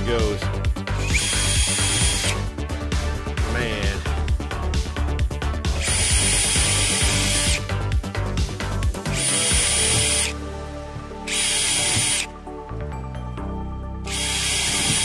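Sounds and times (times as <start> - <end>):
cordless drill whining: 0.9 - 2.5, 5.7 - 7.8, 9.0 - 10.4, 11.2 - 12.3, 14.1 - 15.0.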